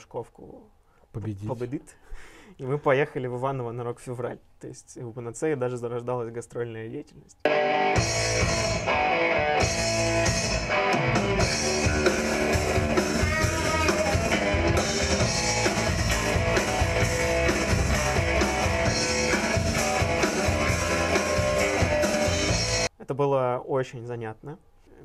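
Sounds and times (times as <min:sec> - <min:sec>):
rock band playing: 0:07.5 - 0:22.9.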